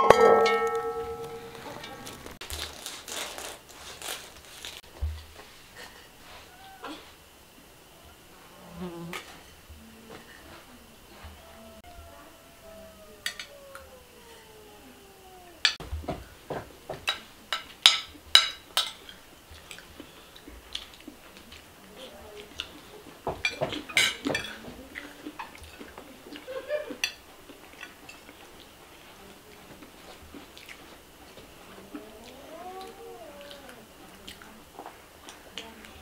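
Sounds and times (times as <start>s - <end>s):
cutlery clinking on dishes: 0.0s - 2.3s, 13.2s - 13.6s, 16.9s - 19.8s, 23.3s - 24.8s, 27.0s - 27.2s.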